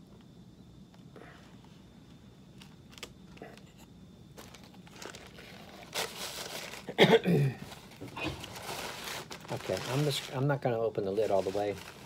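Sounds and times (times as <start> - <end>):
paper towel rustling and crumpling: 4.4 - 7.0, 7.6 - 12.0.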